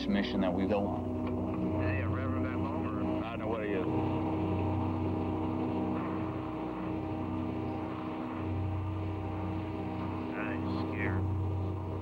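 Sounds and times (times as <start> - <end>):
road noise: 0.0 - 12.0
vehicle engine droning: 0.0 - 12.0.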